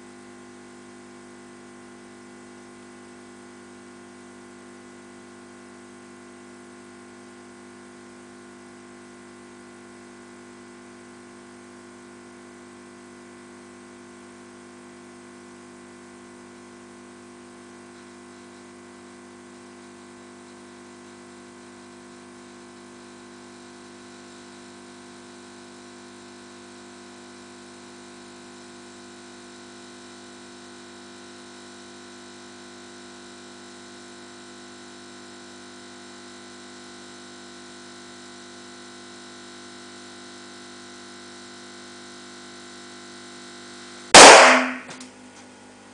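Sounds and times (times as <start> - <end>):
balloon bursting with loud pop: 44.2 - 45.0.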